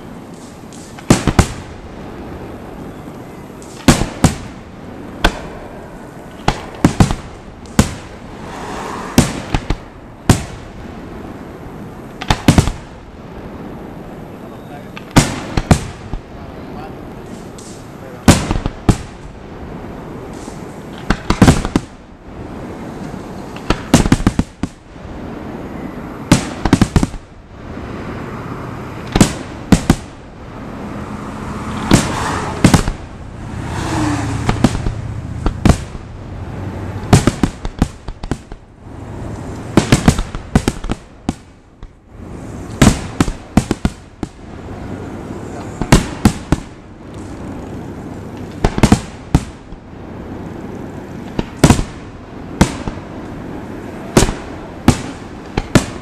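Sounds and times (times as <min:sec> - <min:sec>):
firework shells bursting: 0:00.2 - 0:02.4, 0:03.1 - 0:11.0, 0:11.8 - 0:13.0, 0:14.8 - 0:16.3, 0:17.1 - 0:19.3, 0:20.0 - 0:22.1, 0:23.5 - 0:24.9, 0:26.2 - 0:27.3, 0:29.0 - 0:30.2, 0:31.7 - 0:33.2, 0:34.4 - 0:36.1, 0:37.0 - 0:38.8, 0:39.4 - 0:42.0, 0:42.7 - 0:44.6, 0:45.6 - 0:47.4, 0:48.3 - 0:49.9, 0:51.1 - 0:53.3, 0:54.1 - 0:56.0.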